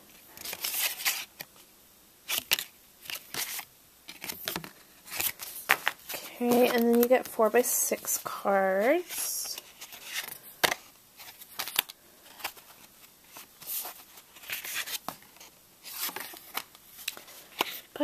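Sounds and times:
paper cards rustling: 0:00.2 - 0:01.6, 0:02.3 - 0:18.0.

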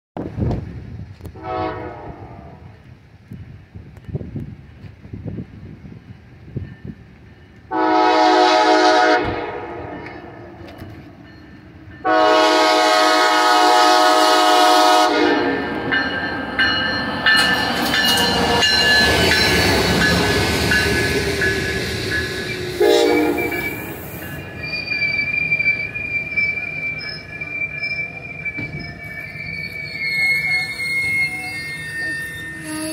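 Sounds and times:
train wheels rumbling and clattering: 0:00.2 - 0:01.6, 0:02.5 - 0:32.9
train horn blasts: 0:01.3 - 0:02.7, 0:07.7 - 0:10.1, 0:12.0 - 0:15.8, 0:22.7 - 0:24.2
high wheel squeal: 0:16.6 - 0:32.9.

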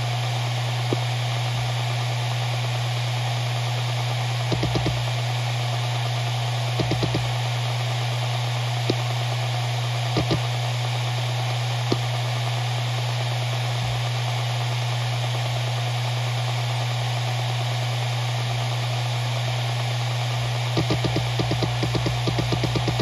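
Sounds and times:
hard drive spinning: 0:00.0 - 0:23.0
hard drive seek clicks: 0:00.8 - 0:01.1, 0:04.5 - 0:05.1, 0:06.8 - 0:07.4, 0:10.1 - 0:10.5, 0:11.9 - 0:12.1, 0:20.7 - 0:23.0.

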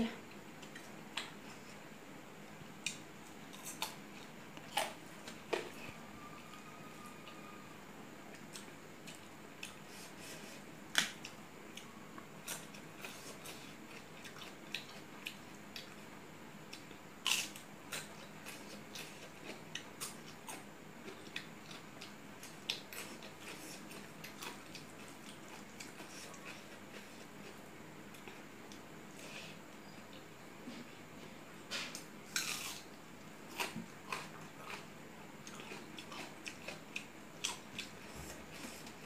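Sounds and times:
wet chewing clicks and smacks: 0:33.2 - 0:38.0.

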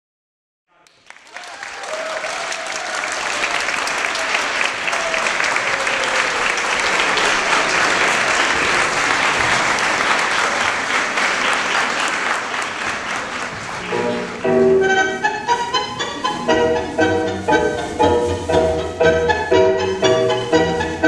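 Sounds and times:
audience applauding: 0:00.8 - 0:14.5.

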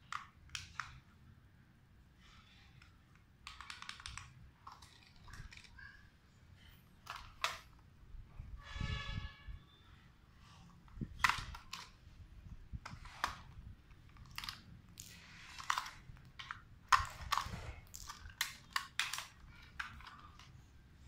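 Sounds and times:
plastic toy car clicks and rattles: 0:00.0 - 0:01.1, 0:02.2 - 0:06.0, 0:06.6 - 0:07.9, 0:10.4 - 0:20.7.

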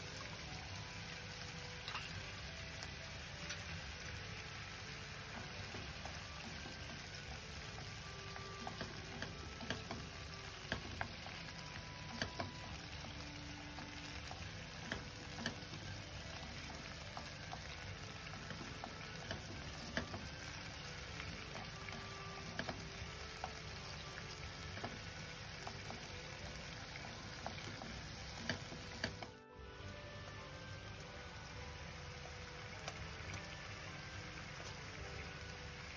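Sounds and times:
meat sizzling in a frying pan: 0:00.0 - 0:35.9.

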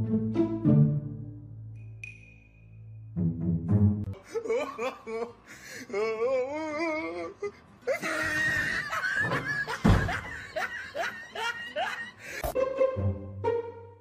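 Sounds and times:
laughter: 0:04.2 - 0:05.4, 0:07.9 - 0:12.2
person's wavering voice: 0:04.2 - 0:08.2
person shrieking: 0:05.8 - 0:09.0
wooden door crashing open: 0:09.2 - 0:10.5.

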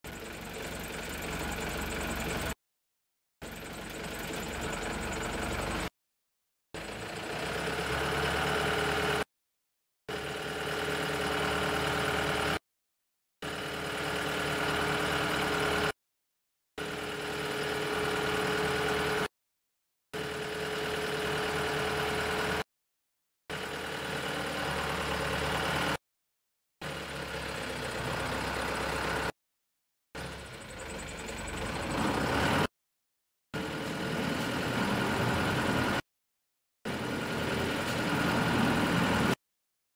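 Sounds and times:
diesel engine running: 0:00.1 - 0:02.6, 0:03.4 - 0:05.9, 0:06.8 - 0:09.3, 0:10.1 - 0:12.6, 0:13.4 - 0:16.0, 0:16.8 - 0:19.3, 0:20.2 - 0:22.7, 0:23.5 - 0:26.0, 0:26.8 - 0:29.4, 0:30.2 - 0:32.7, 0:33.6 - 0:36.0, 0:36.9 - 0:39.4.

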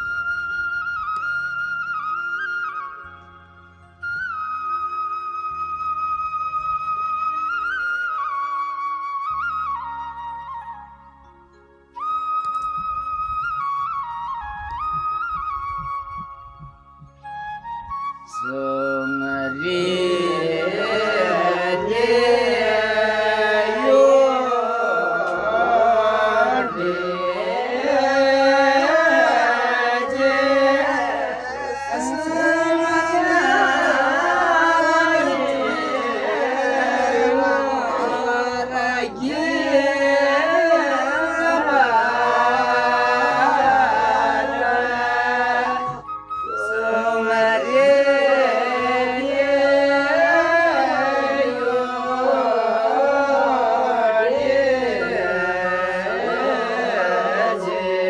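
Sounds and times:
men singing together: 0:19.1 - 0:46.0, 0:46.6 - 0:58.0.

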